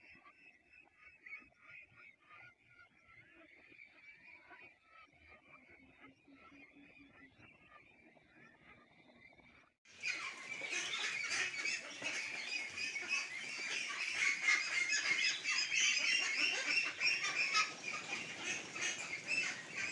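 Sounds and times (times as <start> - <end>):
ducks chattering: 9.9 - 19.9.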